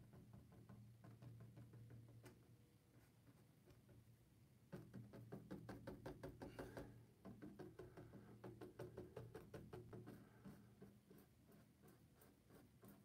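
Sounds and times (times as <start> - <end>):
paintbrush dabbing on canvas: 8.2 - 13.0.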